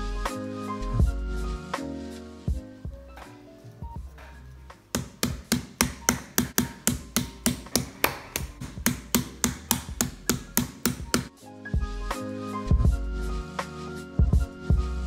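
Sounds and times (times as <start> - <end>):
meat mallet pounding on board: 4.9 - 11.3.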